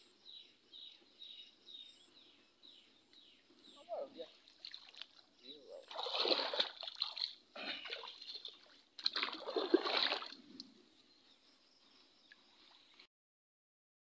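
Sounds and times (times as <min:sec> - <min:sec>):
faint water trickle: 0:03.8 - 0:10.8
water splashing around wading legs: 0:04.4 - 0:10.4.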